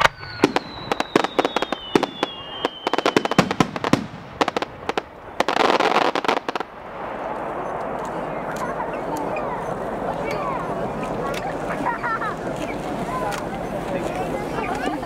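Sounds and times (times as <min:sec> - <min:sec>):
falling firework whistle: 0:00.0 - 0:06.6
firework crackling: 0:00.0 - 0:15.0.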